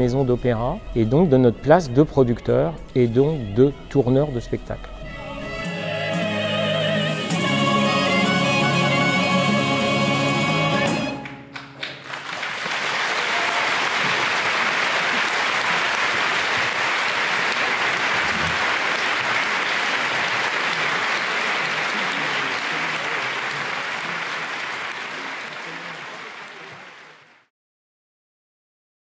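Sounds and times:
audience applauding: 11.0s - 27.5s.

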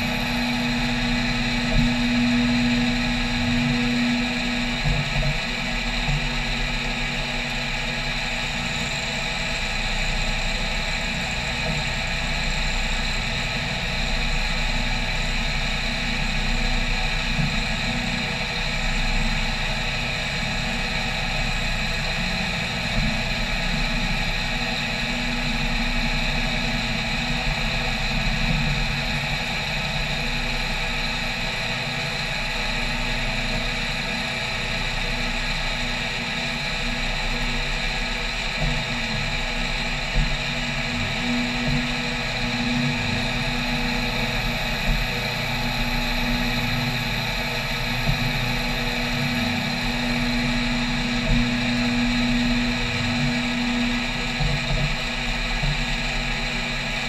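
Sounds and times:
milling machine cutting metal whine: 0.0s - 57.0s.

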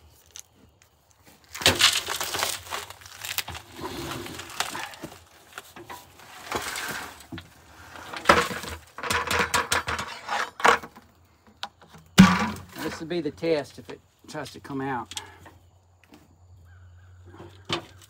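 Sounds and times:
charcoal pouring into metal drum: 1.6s - 5.2s, 6.1s - 9.5s
bucket knocking on drum rim: 12.2s - 12.8s.

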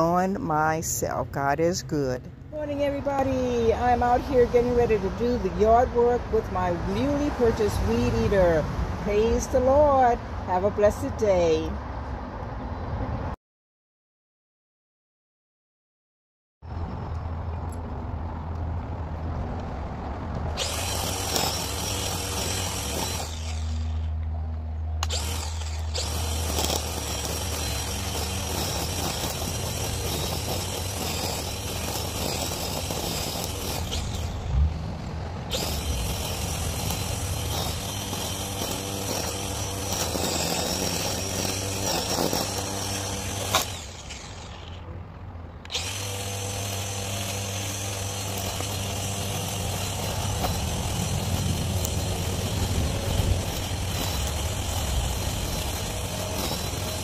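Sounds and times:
string trimmer motor whining: 2.7s - 11.0s, 20.5s - 24.3s, 25.0s - 45.0s, 45.6s - 57.0s.

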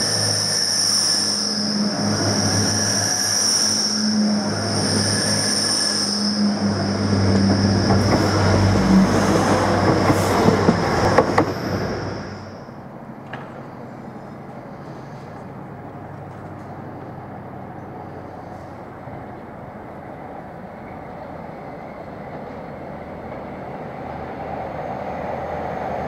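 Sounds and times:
high whine: 0.0s - 12.8s
train wheels rumbling: 0.0s - 26.0s.

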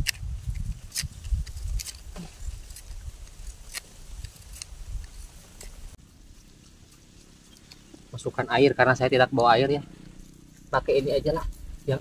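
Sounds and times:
sharp clicks and scrapes: 0.0s - 7.9s.

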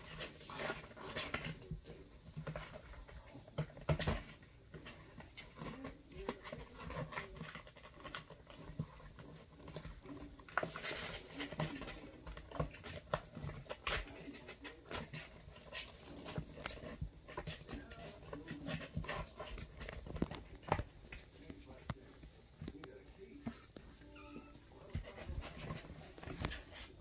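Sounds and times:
kittens scratching cardboard: 0.0s - 27.0s.

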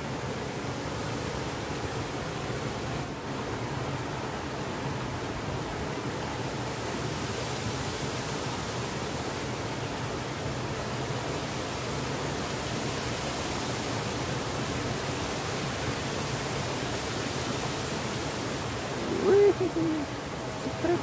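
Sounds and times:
stream rushing over rocks: 0.0s - 21.0s
hooting call: 18.9s - 21.0s.

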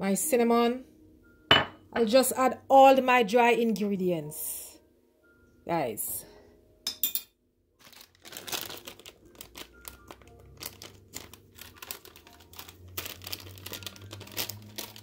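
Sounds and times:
plastic packaging crinkling: 7.8s - 15.0s.

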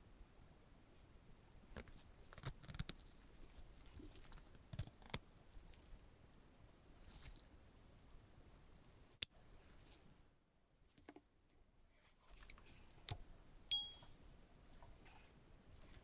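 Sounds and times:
soft rustling: 0.4s - 13.1s, 13.9s - 16.0s
short high chime: 13.7s - 14.1s.

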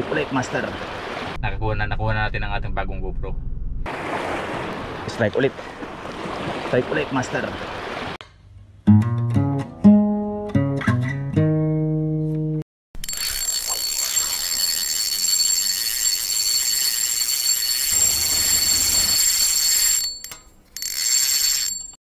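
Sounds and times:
plucked guitar riff: 8.9s - 12.6s
thin high steady tones: 13.0s - 22.0s.

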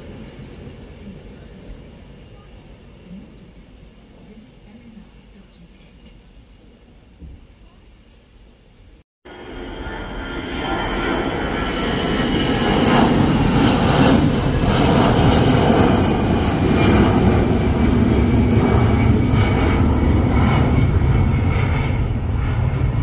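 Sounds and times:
jet airliner passing overhead: 0.0s - 23.0s.

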